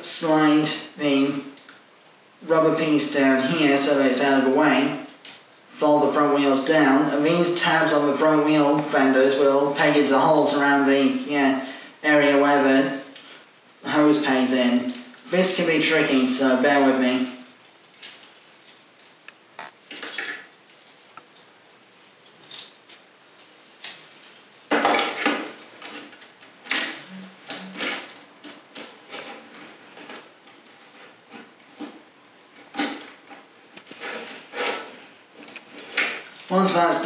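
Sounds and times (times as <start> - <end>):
plastic toy parts clicking and scraping: 22.2 - 36.6.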